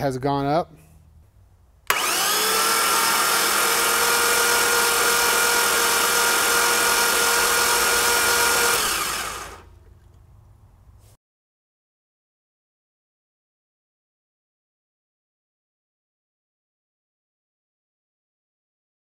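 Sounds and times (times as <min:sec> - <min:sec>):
engine cranking on starter: 0:01.9 - 0:09.8.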